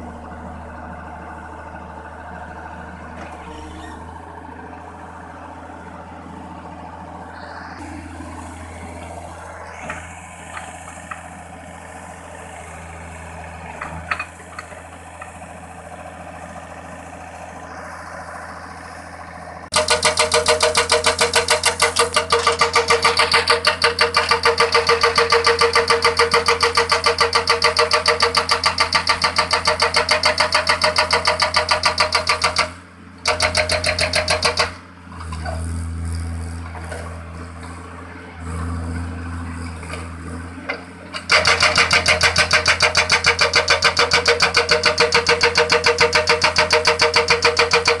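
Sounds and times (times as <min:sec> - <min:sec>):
diesel engine running: 0:00.0 - 0:48.0
hydraulic breaker hammering: 0:19.7 - 0:35.6, 0:41.1 - 0:48.0.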